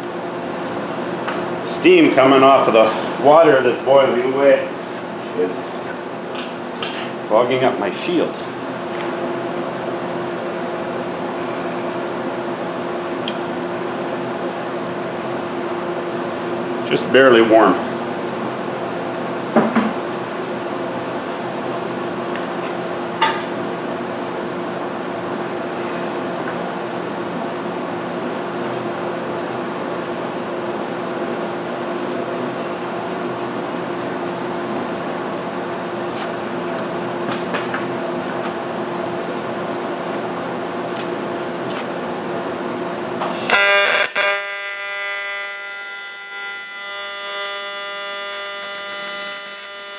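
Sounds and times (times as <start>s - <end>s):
welding machine humming and hissing: 11.2s - 12.5s, 43.2s - 49.9s.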